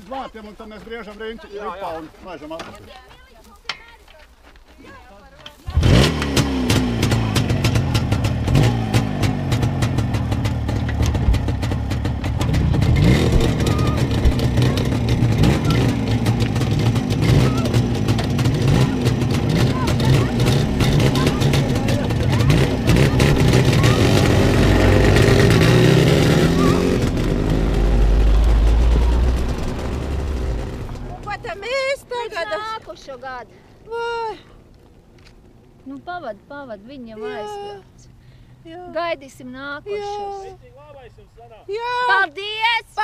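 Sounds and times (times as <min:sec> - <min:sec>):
two-stroke motorcycle engine revving: 0:05.7 - 0:31.4.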